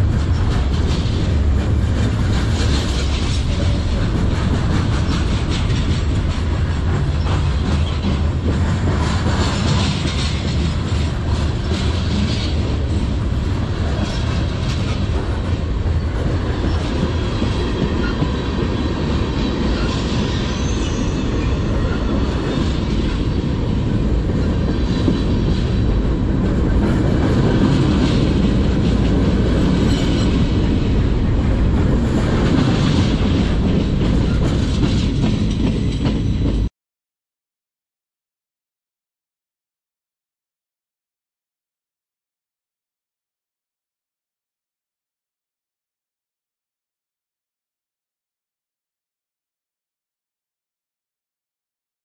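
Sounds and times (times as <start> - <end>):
freight train wheels rumbling: 0.0 - 36.7.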